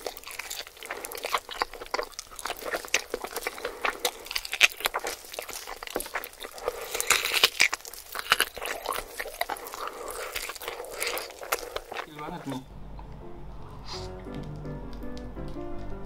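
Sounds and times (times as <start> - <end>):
crunchy bites: 0.0 - 12.6
meat tearing from bone: 0.0 - 12.6
wet chewing and lip smacking: 0.0 - 13.1
wet sucking sound: 13.6 - 14.3.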